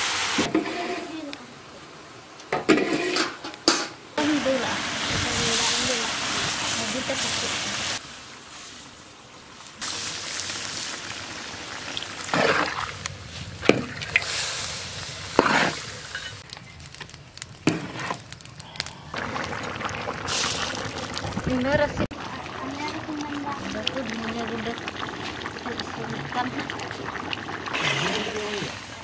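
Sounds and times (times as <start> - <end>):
water sizzling in a hot pan: 0.0 - 1.3, 4.2 - 29.0
spatula scraping a pan: 0.5 - 1.1, 2.7 - 3.4, 15.3 - 16.4.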